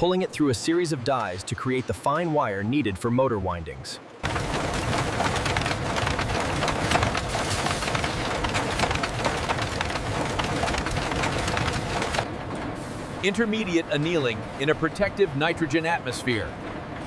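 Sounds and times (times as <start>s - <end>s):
machinery clattering: 4.2s - 12.8s
mechanical rumble: 4.2s - 14.6s.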